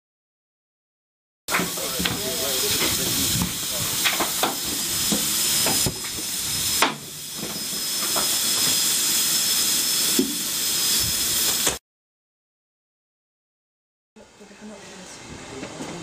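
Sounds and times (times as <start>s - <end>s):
loud steam hiss: 1.5s - 11.8s.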